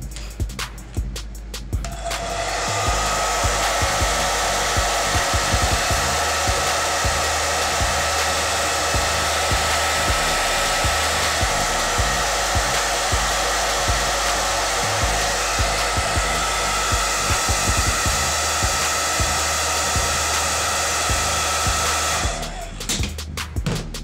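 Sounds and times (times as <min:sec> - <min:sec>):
hair dryer blowing: 0:01.8 - 0:24.0
low thumps: 0:22.5 - 0:24.0.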